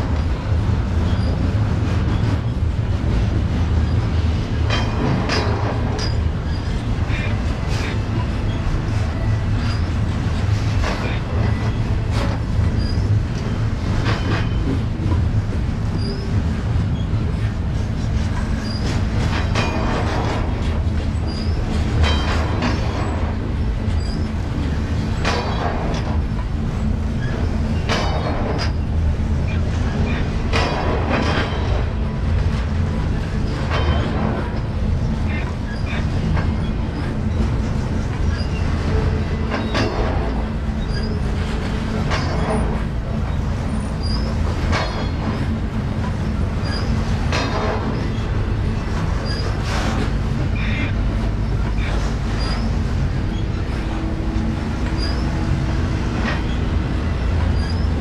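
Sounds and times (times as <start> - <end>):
train wheels rumbling: 0.0 - 58.0
high wheel squeals: 40.8 - 41.5, 43.7 - 45.5, 49.2 - 49.7, 57.6 - 58.0.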